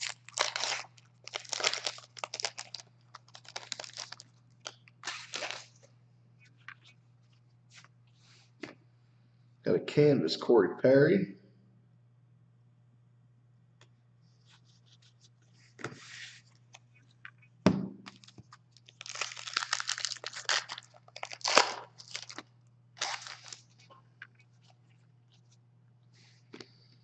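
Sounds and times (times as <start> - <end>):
foil wrappers crinkling and tearing: 0.0 - 5.9, 18.1 - 25.4.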